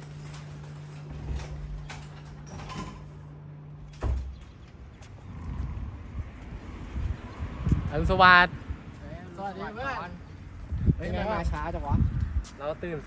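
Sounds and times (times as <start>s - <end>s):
knocks and creaks: 0.0s - 5.7s
open-air rush: 0.0s - 13.0s
door thump: 4.0s - 4.4s.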